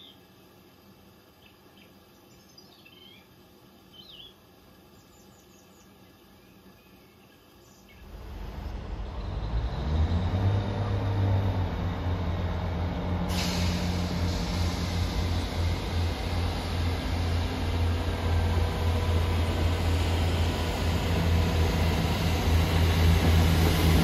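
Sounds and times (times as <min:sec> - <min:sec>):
train diesel engines droning: 0:08.0 - 0:24.0
brake air hiss: 0:12.8 - 0:18.4.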